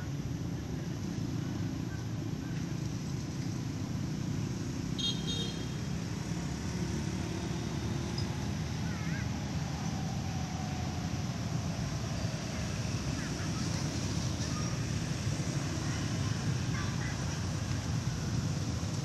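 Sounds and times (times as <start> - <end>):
low outdoor rumble: 8.3 - 19.0.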